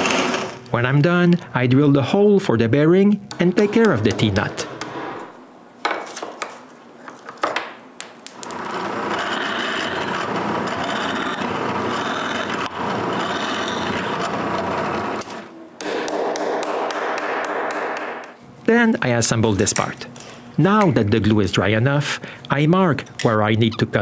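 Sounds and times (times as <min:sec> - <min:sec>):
drill press boring into wood: 0:00.0 - 0:00.6, 0:08.6 - 0:15.4.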